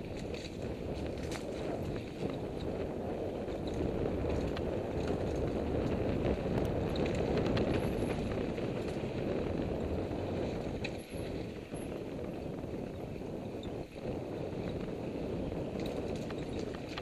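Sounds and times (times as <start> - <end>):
tyres rumbling on dirt: 0.0 - 12.4
bike clicks and rattles: 0.0 - 17.0
wind on microphone: 0.0 - 17.0.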